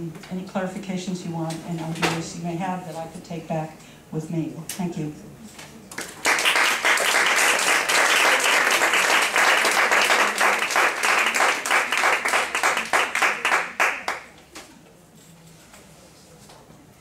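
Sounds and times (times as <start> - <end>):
audience applauding: 6.0 - 14.3.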